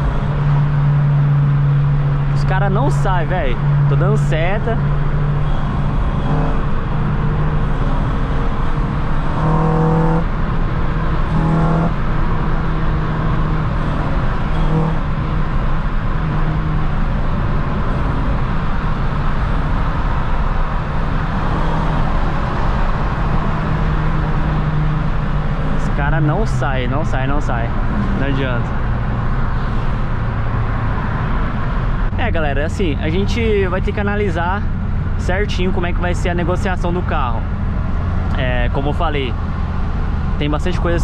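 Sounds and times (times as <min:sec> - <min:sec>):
car engine and road noise: 0:00.0 - 0:41.0.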